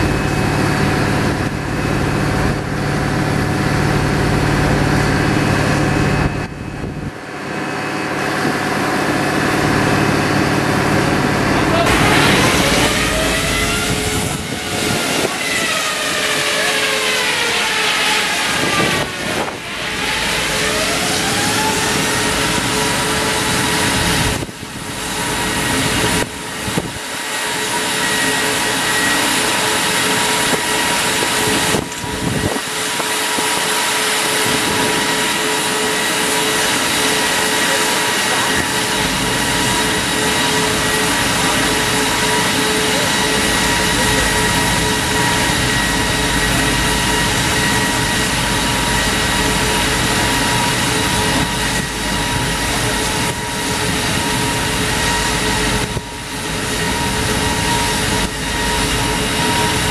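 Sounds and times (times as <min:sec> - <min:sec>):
wire saw pulleys whining: 0:07.2 - 0:59.9
cooling water spraying: 0:11.6 - 0:24.4.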